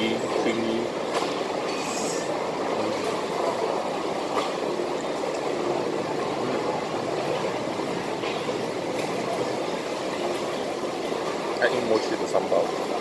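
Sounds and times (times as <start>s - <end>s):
food court din: 0.0s - 13.0s.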